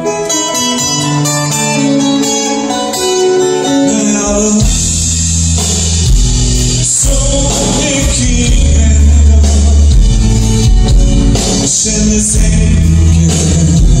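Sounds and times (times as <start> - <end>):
bass guitar: 0.0 - 14.0
electric guitars: 0.0 - 14.0
man singing: 3.4 - 5.4, 6.7 - 14.0
drums with cymbals: 4.6 - 14.0.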